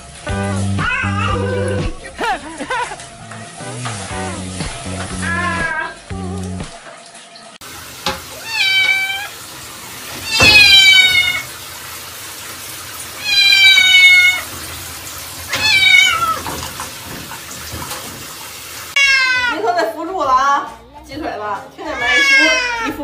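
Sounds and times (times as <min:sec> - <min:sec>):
cat meowing loudly: 0:00.8 - 0:01.7, 0:08.4 - 0:09.4, 0:10.2 - 0:11.5, 0:13.2 - 0:14.5, 0:15.5 - 0:16.5, 0:19.0 - 0:19.6, 0:21.9 - 0:23.0.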